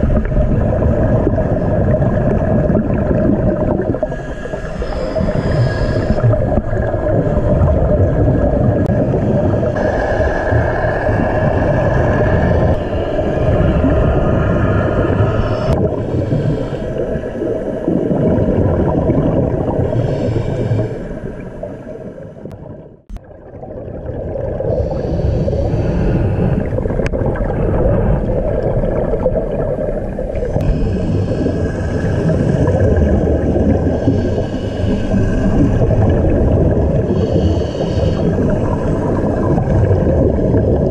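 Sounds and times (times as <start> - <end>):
air bubbling underwater: 0.0 - 40.9
low underwater rumble: 0.0 - 40.9.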